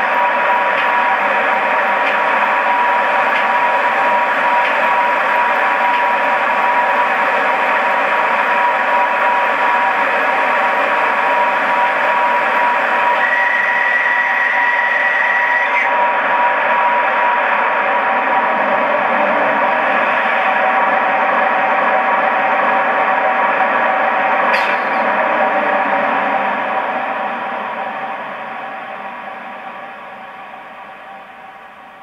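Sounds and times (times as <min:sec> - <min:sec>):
model train running hiss and whine: 0:00.0 - 0:32.0
high whistling tone: 0:11.3 - 0:17.4.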